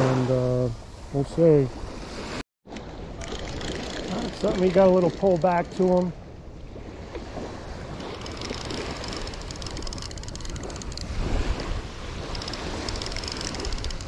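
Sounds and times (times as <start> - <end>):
small waves washing on beach: 0.0 - 14.0
wind buffeting microphone: 3.1 - 14.0.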